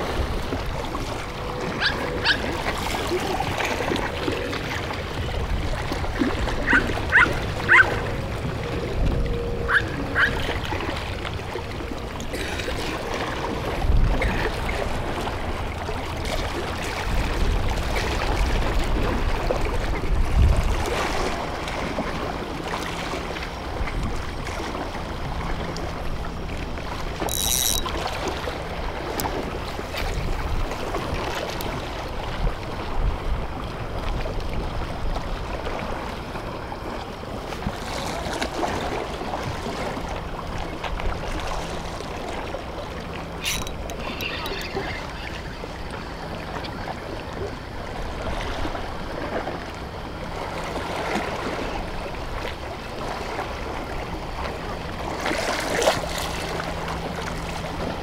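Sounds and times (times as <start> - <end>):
wind buffeting microphone: 0.0 - 22.2
sea water washing against breakwater: 0.0 - 58.0.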